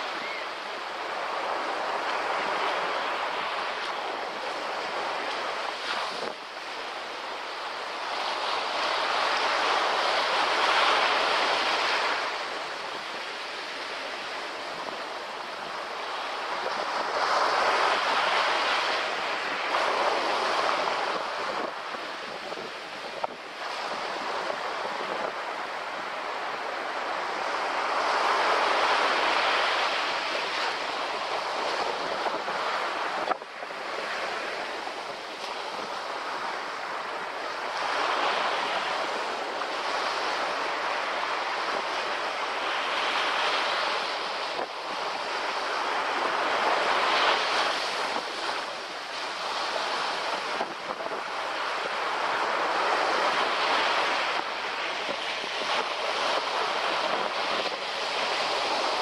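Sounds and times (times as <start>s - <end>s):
small waves lapping on beach: 0.0s - 59.0s.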